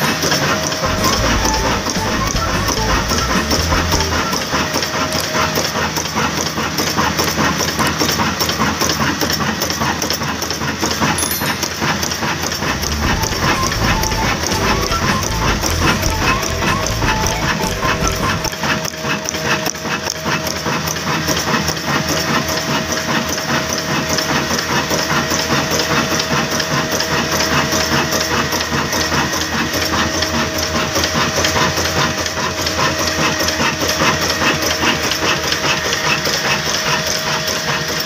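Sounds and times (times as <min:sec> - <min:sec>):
diesel engine knocking: 0:00.2 - 0:11.0, 0:12.0 - 0:18.6.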